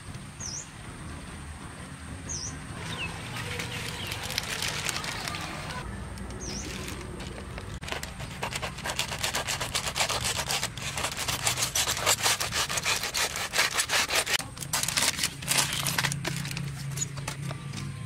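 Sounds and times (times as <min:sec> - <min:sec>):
foil crinkling: 0:03.2 - 0:05.8, 0:06.4 - 0:17.6
knife sawing through foil: 0:03.3 - 0:05.4, 0:07.8 - 0:17.4.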